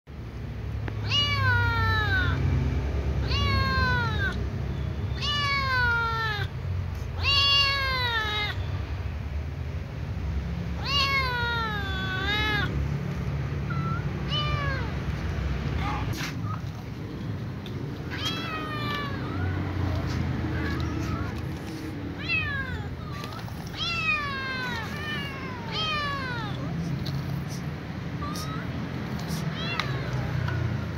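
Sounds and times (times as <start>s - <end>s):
kitten meowing: 1.0s - 2.4s, 3.2s - 4.4s, 5.1s - 8.7s, 10.8s - 12.7s, 13.7s - 15.0s, 15.8s - 27.6s, 28.2s - 30.9s.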